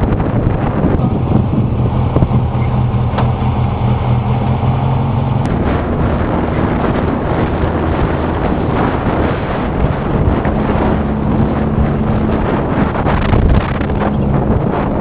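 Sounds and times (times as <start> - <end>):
car engine running: 0.0 - 15.0
road noise on dirt: 0.0 - 15.0.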